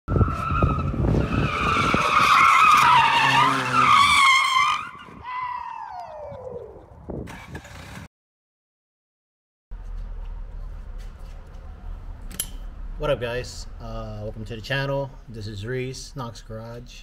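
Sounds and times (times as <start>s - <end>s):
tires squealing: 0.1s - 5.9s.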